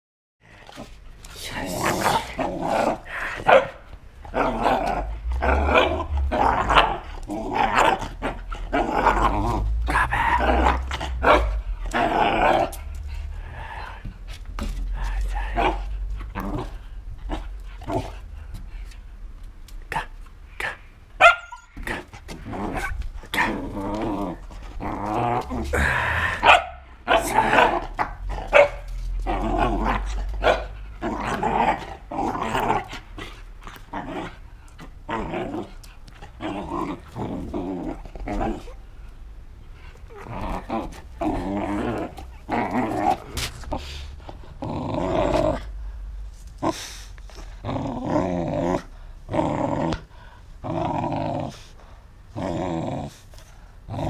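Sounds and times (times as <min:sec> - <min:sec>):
dog play-growling: 0:00.5 - 0:19.0, 0:21.7 - 0:54.0
dog barking: 0:03.5 - 0:03.8, 0:21.2 - 0:21.6, 0:26.4 - 0:27.7, 0:28.5 - 0:28.8, 0:30.4 - 0:30.7.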